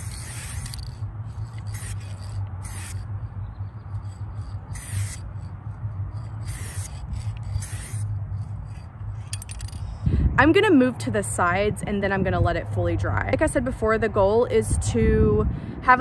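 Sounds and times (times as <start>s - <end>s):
spray paint can hissing: 0.0s - 8.9s
wind rumble on microphone: 0.0s - 16.0s.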